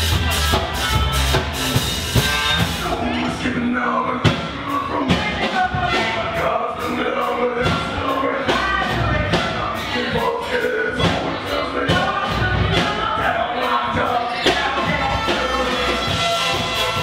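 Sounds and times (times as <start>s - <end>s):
drums on a steady beat: 0.0s - 3.2s, 4.2s - 17.0s
trumpet: 0.0s - 3.2s, 14.4s - 17.0s
live band playing: 0.0s - 17.0s
voices singing together: 2.5s - 17.0s.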